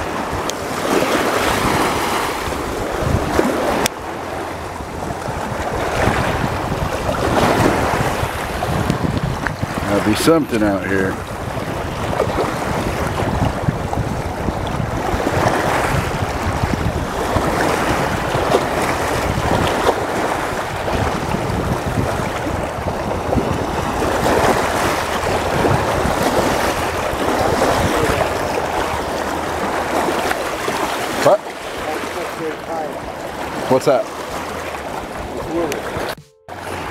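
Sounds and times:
river water rushing: 0:00.0 - 0:08.9, 0:17.0 - 0:36.9
wind buffeting microphone: 0:00.0 - 0:36.9.

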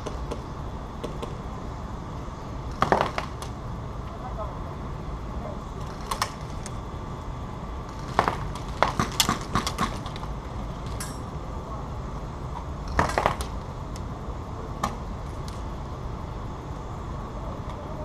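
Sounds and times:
low background noise: 0:00.0 - 0:18.0.

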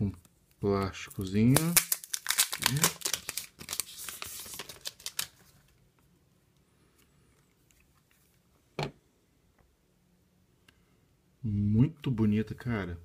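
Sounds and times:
plastic film crinkling: 0:01.1 - 0:05.7.

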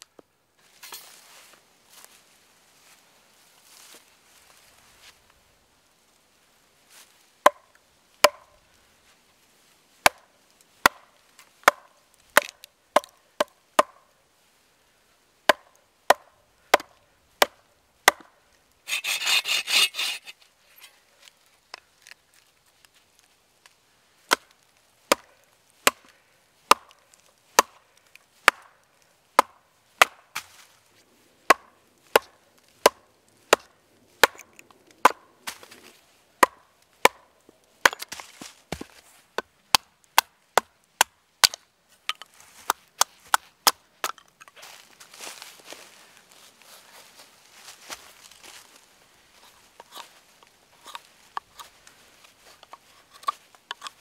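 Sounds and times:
wooden club knocking hatchet: 0:08.2 - 0:08.5, 0:10.8 - 0:11.0, 0:11.6 - 0:14.0, 0:15.5 - 0:18.3, 0:26.7 - 0:27.0, 0:31.5 - 0:35.6, 0:36.4 - 0:42.3
folding saw strokes: 0:18.9 - 0:20.4.

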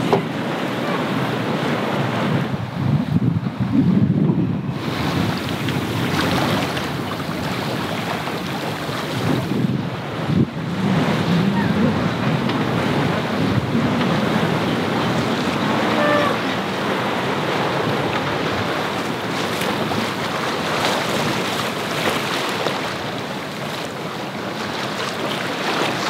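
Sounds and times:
water splashing along a hull: 0:00.0 - 0:26.0
wind buffeting microphone: 0:00.0 - 0:26.0
brief high-pitched tone: 0:15.9 - 0:16.4.

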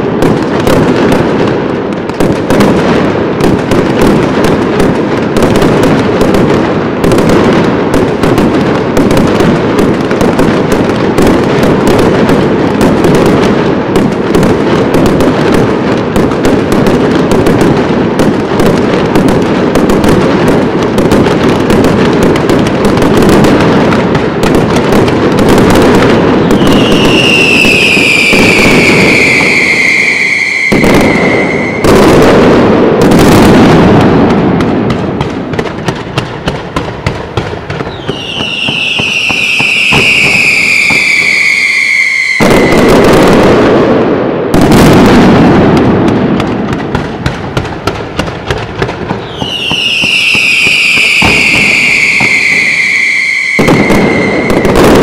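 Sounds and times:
fireworks crackling and banging: 0:00.0 - 0:55.0
falling firework whistles: 0:26.4 - 0:32.3, 0:37.8 - 0:43.3, 0:49.2 - 0:55.0.

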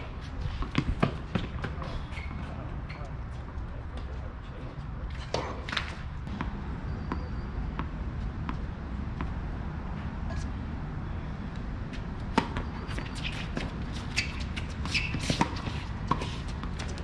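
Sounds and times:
tennis ball bouncing on court: 0:11.9 - 0:17.0
racket hitting tennis ball: 0:12.2 - 0:17.0.

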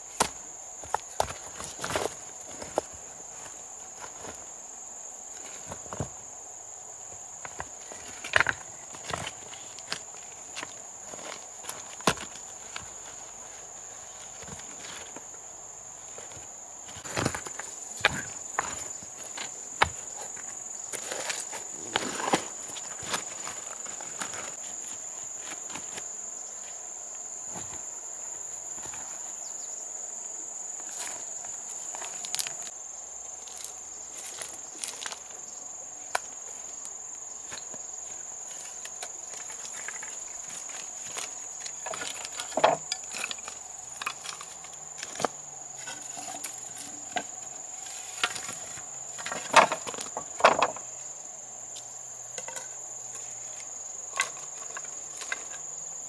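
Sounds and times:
high-pitched insect chorus: 0:00.0 - 0:56.0.

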